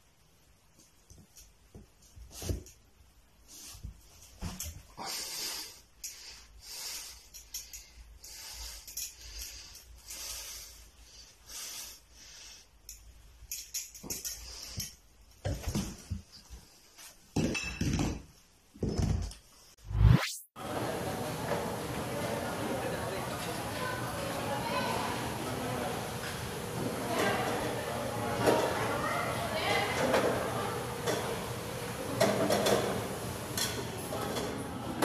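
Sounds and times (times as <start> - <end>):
plates and bottle clattering on floor: 17.4 - 19.3
short rising whoosh: 19.8 - 20.6.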